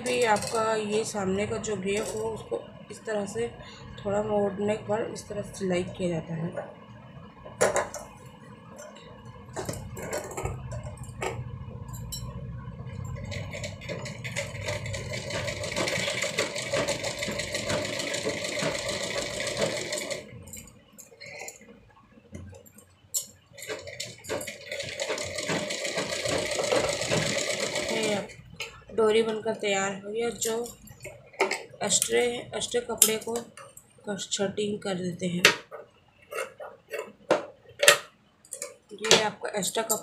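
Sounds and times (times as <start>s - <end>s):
sewing machine stitching: 13.2s - 20.4s, 23.6s - 28.4s.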